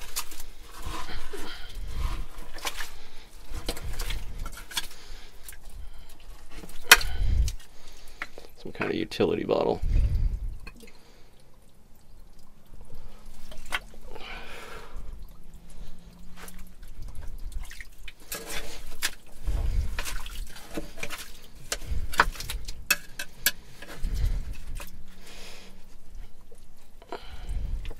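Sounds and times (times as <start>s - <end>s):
wet dripping: 9.8s - 27.9s.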